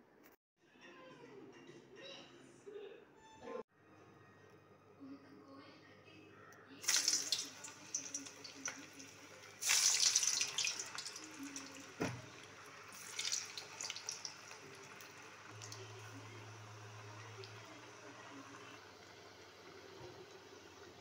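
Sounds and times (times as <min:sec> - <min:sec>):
batter sizzling in hot oil: 0:06.8 - 0:21.0.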